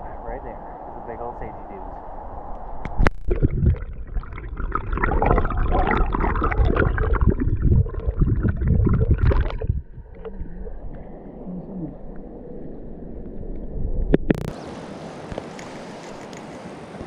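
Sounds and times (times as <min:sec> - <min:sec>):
muffled underwater river gurgling: 0:00.0 - 0:14.7
underwater knocks and bumps: 0:02.8 - 0:11.0, 0:13.5 - 0:14.5.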